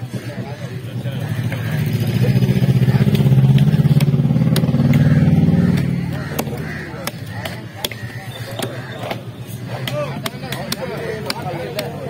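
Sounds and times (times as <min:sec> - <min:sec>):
vehicle engine running: 0:01.0 - 0:08.1
cleaver chopping on wooden block: 0:03.1 - 0:12.0.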